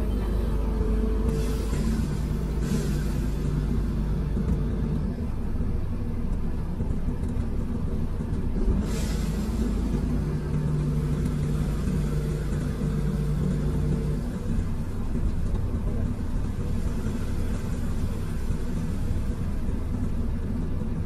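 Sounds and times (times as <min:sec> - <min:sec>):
excavator diesel engine running: 0:00.0 - 0:21.0.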